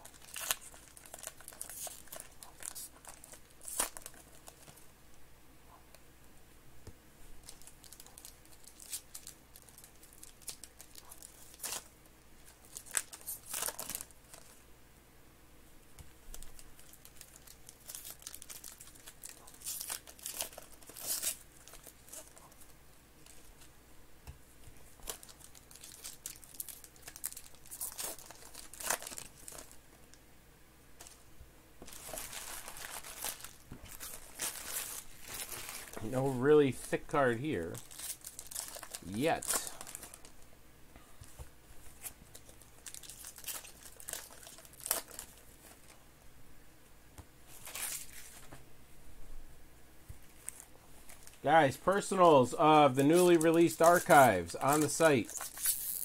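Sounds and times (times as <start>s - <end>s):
foil wrappers ripping and crinkling: 0.0s - 4.8s, 7.4s - 14.6s, 16.3s - 22.6s, 25.0s - 29.8s, 31.8s - 36.6s, 37.5s - 40.4s, 42.0s - 46.0s, 47.5s - 48.4s, 52.9s - 56.0s.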